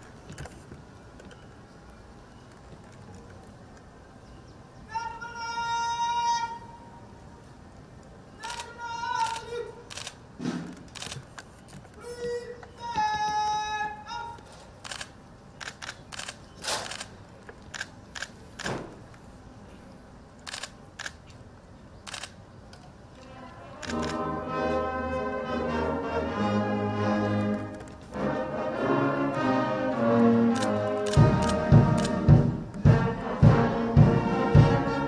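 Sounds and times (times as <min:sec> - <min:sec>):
camera shutter clicks: 0:08.4 - 0:10.2, 0:10.9 - 0:11.4, 0:14.8 - 0:18.8, 0:20.4 - 0:21.2, 0:22.0 - 0:22.4, 0:23.8 - 0:24.2, 0:30.5 - 0:32.2
military brass band playing: 0:23.8 - 0:35.0.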